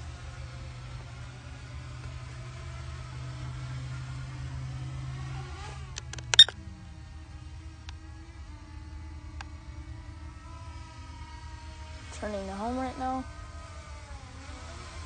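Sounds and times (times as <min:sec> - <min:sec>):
drone motors buzzing: 0:00.0 - 0:15.0
sharp clicks: 0:05.9 - 0:06.6.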